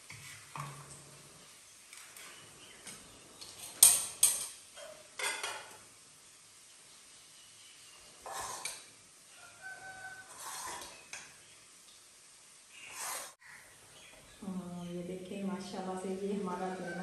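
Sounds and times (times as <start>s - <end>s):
food sizzling while frying: 0.0s - 14.1s
metal spoon scraping steel bowl: 8.2s - 8.8s, 10.2s - 11.0s.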